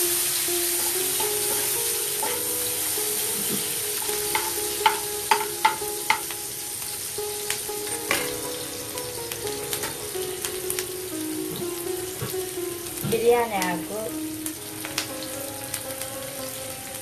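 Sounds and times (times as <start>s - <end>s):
onions sizzling in oil: 0.0s - 17.0s
spatula tapping pan: 0.6s - 6.5s.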